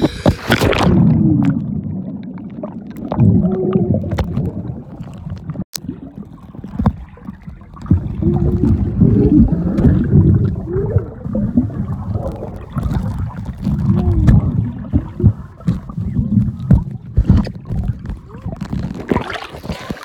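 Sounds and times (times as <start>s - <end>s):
muffled underwater gurgling: 0.0s - 20.0s.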